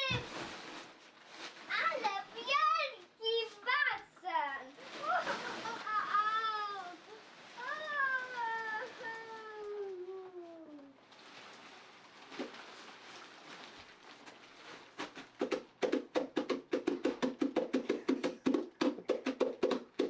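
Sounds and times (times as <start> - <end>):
soft hiss: 0.0 - 15.4
hands slapping inflatable nylon: 0.0 - 20.0.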